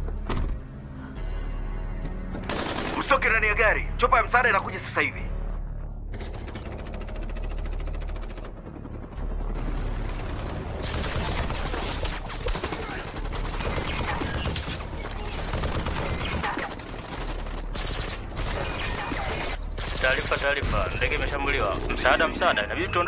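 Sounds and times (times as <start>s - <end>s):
automatic gunfire: 2.5s - 3.2s, 10.4s - 22.2s
helicopter rotor chopping: 6.1s - 23.0s.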